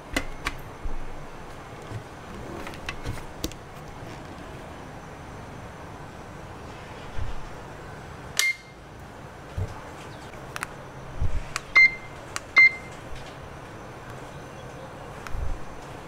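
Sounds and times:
appliance control panel beeps: 0:08.4 - 0:08.8, 0:11.7 - 0:13.0.

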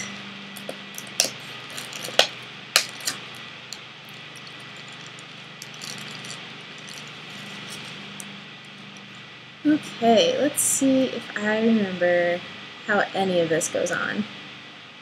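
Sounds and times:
steady low hum: 0:00.0 - 0:15.0
small hard objects clicking: 0:00.6 - 0:09.1.

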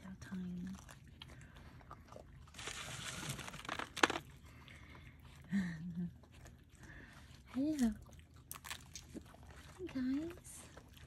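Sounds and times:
animals chewing and crunching: 0:00.0 - 0:11.0
crunchy rustle: 0:02.5 - 0:04.3.

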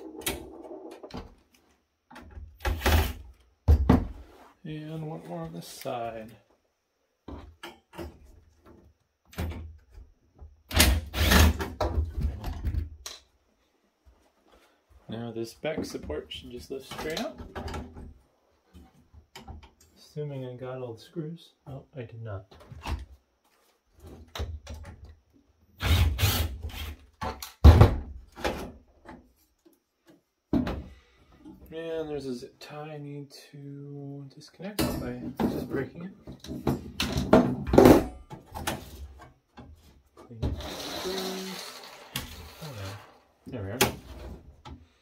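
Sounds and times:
rough rasping noise: 0:40.6 - 0:43.3.

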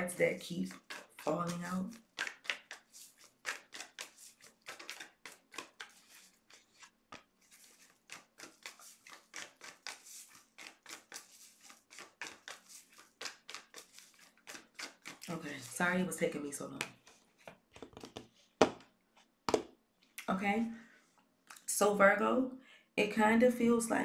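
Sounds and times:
cards being shuffled: 0:00.9 - 0:19.7.

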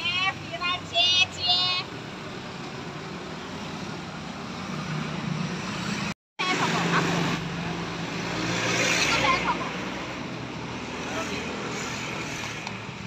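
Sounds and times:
passing motorbike and car engines: 0:01.8 - 0:13.0.

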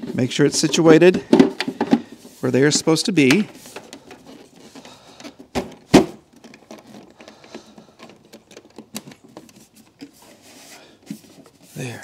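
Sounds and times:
plastic cover knocks: 0:05.5 - 0:06.2
light clicks and rattles: 0:06.2 - 0:10.2.

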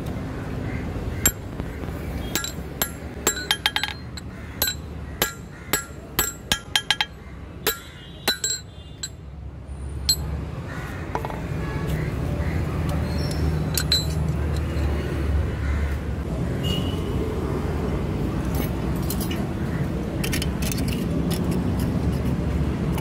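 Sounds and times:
hammer clinking on anvil: 0:02.3 - 0:09.2.

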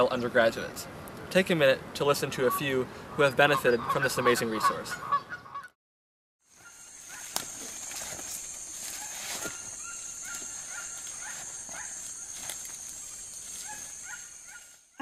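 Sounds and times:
high-pitched insect drone: 0:06.5 - 0:15.0.

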